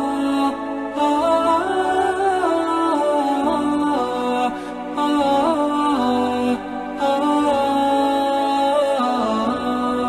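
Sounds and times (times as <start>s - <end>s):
chant-like vocal melody: 0.0s - 10.0s.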